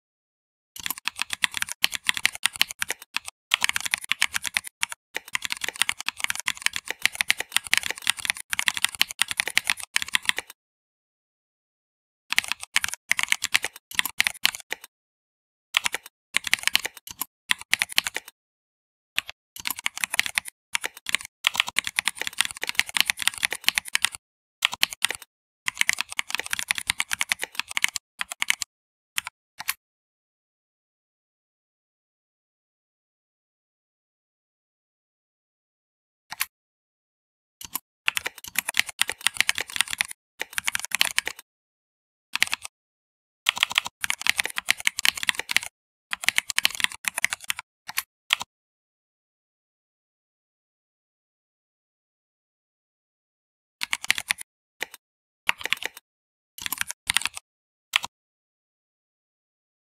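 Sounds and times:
typing on keyboard: 0.8 - 10.6, 12.3 - 14.9, 15.8 - 18.4, 19.2 - 29.8, 37.6 - 41.4, 42.4 - 42.7, 43.5 - 48.5, 53.8 - 56.0, 56.6 - 57.4.

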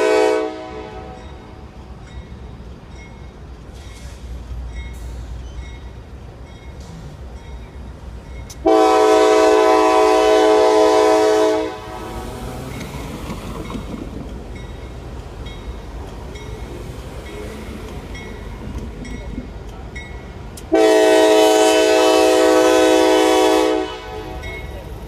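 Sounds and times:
locomotive air horn blast: 0.0 - 1.2, 8.6 - 12.3, 20.7 - 24.5.

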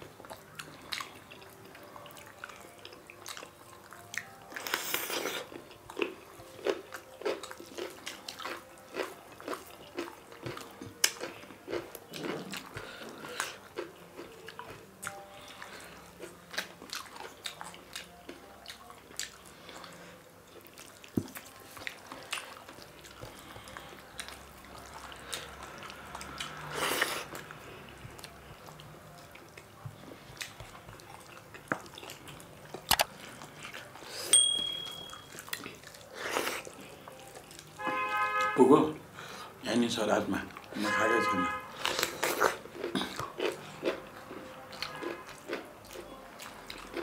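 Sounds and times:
chewing and mouth sounds: 0.0 - 37.9, 41.7 - 47.0
short electronic chime: 34.4 - 35.3.

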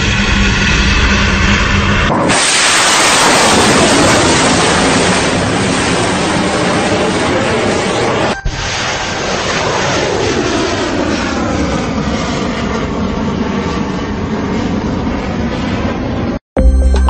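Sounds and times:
jet engine roar: 0.0 - 16.4.

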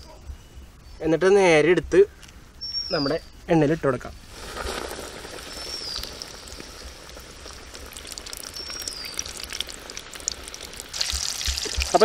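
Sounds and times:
chicken deep-frying in oil: 4.3 - 12.0.

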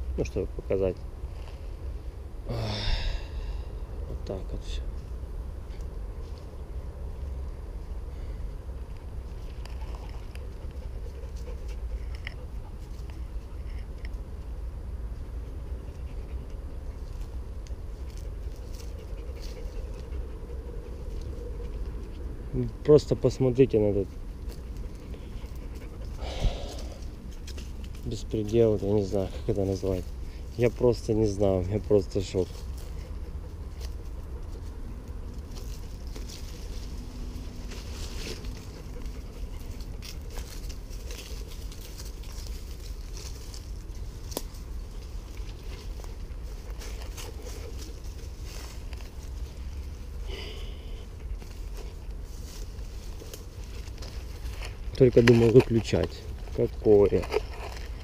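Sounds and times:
grass rustling: 0.0 - 58.0
steady low rumble: 0.0 - 58.0
dog panting: 8.7 - 13.8, 15.2 - 17.0, 18.0 - 22.3, 23.8 - 28.0, 32.2 - 35.0, 38.2 - 41.8, 45.7 - 50.2
footsteps on dirt path: 24.0 - 58.0.

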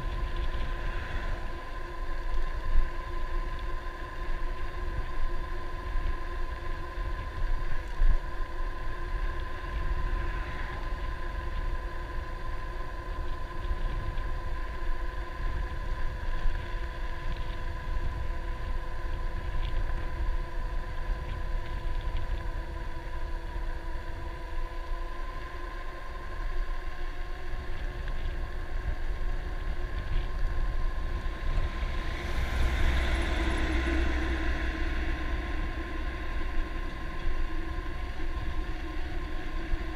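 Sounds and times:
electric bike motor whining: 0.0 - 39.9
wind buffeting microphone: 0.0 - 39.9
truck passing: 31.2 - 38.2.

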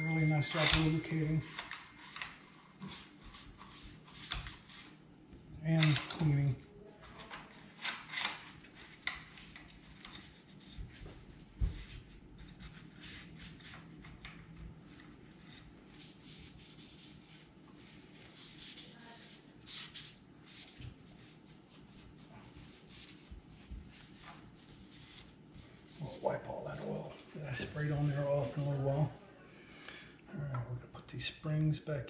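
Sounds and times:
cloth rubbing on metal: 8.5 - 14.0, 14.8 - 29.0.

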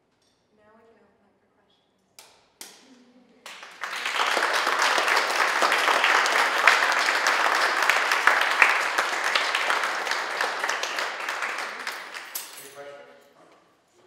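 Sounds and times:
audience applauding: 3.5 - 12.7.

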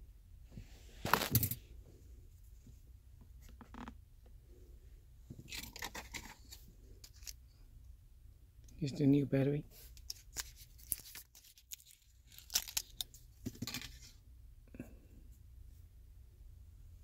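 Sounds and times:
rustling of handled objects: 0.7 - 1.8, 5.2 - 7.5, 8.8 - 14.2.

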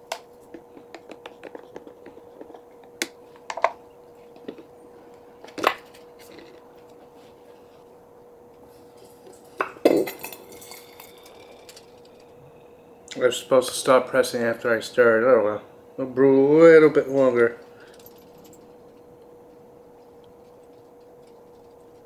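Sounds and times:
faint steady hum: 0.0 - 22.0.

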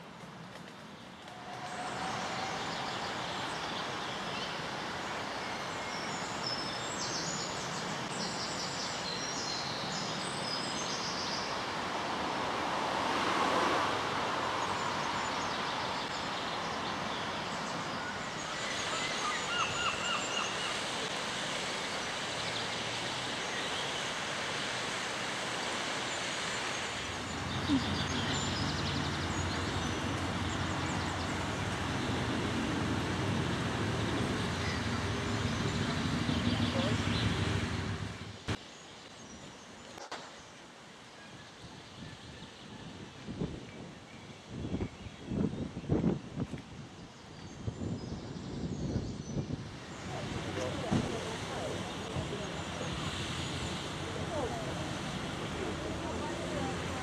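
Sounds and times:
steady outdoor noise: 0.0 - 57.0
birds chirping: 26.0 - 39.8.

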